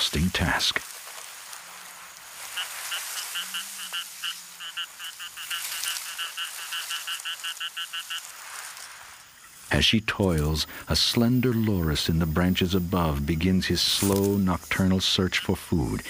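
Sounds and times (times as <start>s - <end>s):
faint night ambience hiss: 0.0s - 16.0s
frog croaking: 2.2s - 9.8s.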